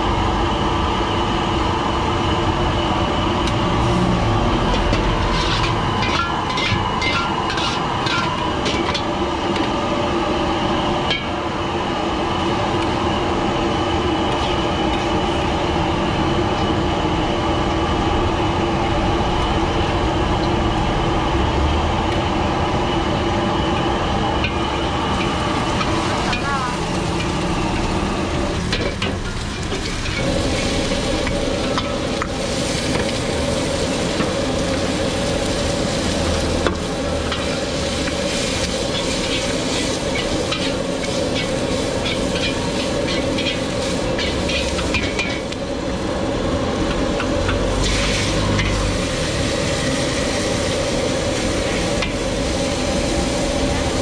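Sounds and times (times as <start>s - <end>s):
food sizzling in a wok: 0.0s - 17.8s, 23.3s - 54.0s
metal ladle scraping wok: 4.6s - 9.1s, 37.2s - 45.5s.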